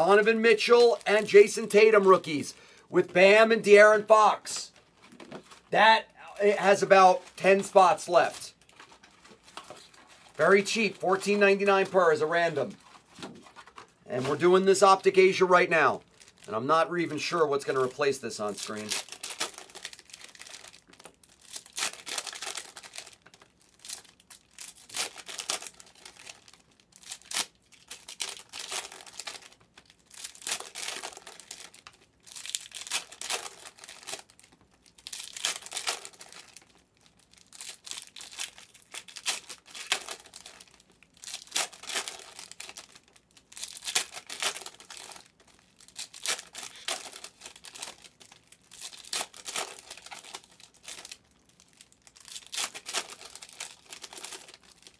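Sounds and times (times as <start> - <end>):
foil wrappers tearing and crinkling: 18.0 - 54.9.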